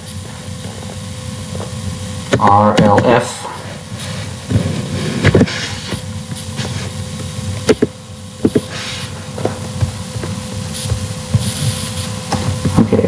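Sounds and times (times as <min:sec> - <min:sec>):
faint hum: 0:00.0 - 0:13.0
steady low rumble: 0:01.2 - 0:11.4.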